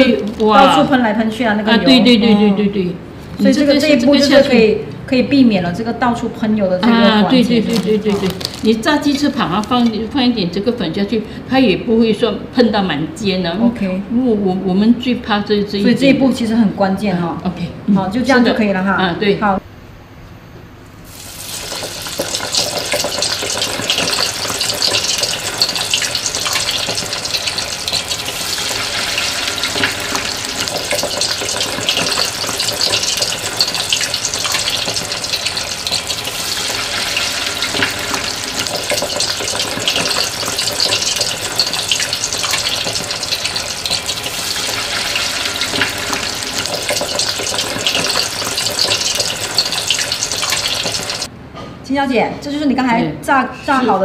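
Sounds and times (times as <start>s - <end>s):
rolls deep-frying in oil: 5.7s - 11.0s, 21.0s - 51.3s.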